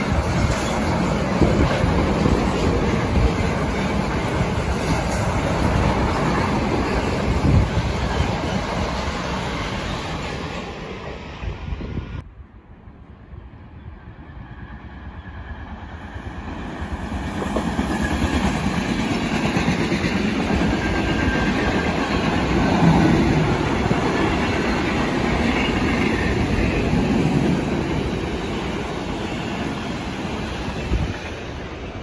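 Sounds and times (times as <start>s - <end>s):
train wheels clattering over rails: 0.0s - 10.8s.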